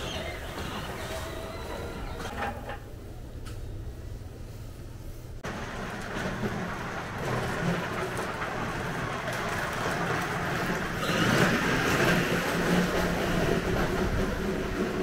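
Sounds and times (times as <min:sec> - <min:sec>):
electric motor and gear whine: 0:00.0 - 0:02.3
plastic wheels rumbling on concrete: 0:00.0 - 0:02.8, 0:05.4 - 0:15.0.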